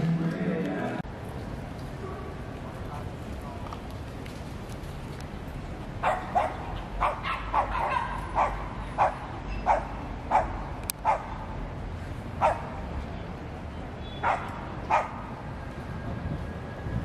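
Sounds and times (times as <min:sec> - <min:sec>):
small dog barking: 0:06.0 - 0:11.3, 0:14.2 - 0:15.2.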